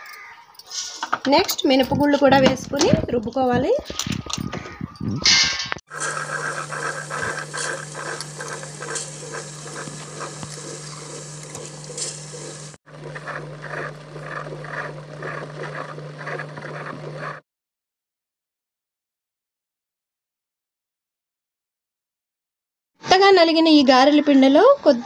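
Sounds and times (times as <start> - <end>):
wet grinder motor humming: 5.9 - 17.4.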